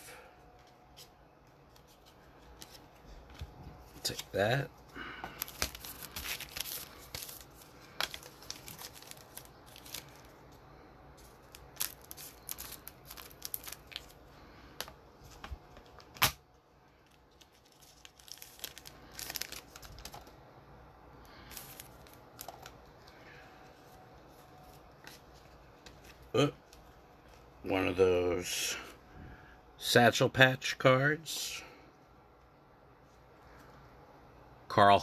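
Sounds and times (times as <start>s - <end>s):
wrapper rustling and crinkling: 5.3s - 10.6s, 11.2s - 14.3s, 17.0s - 20.4s, 21.4s - 27.5s.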